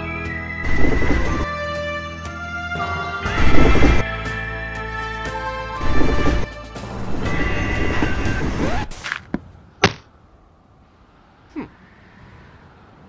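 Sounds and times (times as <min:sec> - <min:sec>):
background music: 0:00.0 - 0:09.0
sharp impact knocks: 0:09.1 - 0:10.1.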